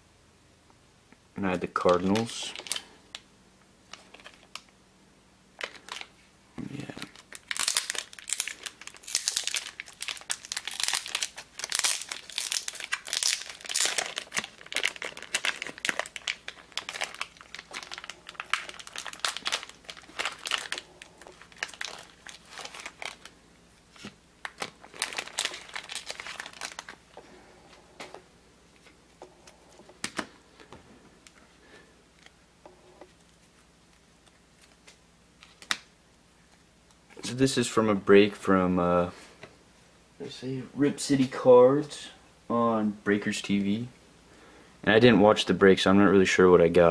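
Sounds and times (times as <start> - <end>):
plastic bag crinkling and tearing: 1.8 - 3.2, 3.9 - 4.7, 5.6 - 6.1, 6.7 - 27.2.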